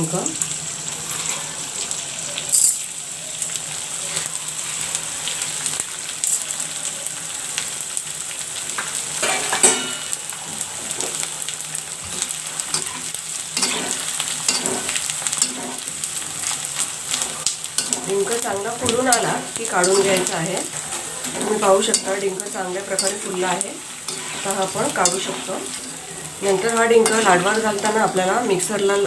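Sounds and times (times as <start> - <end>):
deep-frying sizzling and popping: 0.0 - 29.0
metal spoon scraping pot: 24.1 - 26.1.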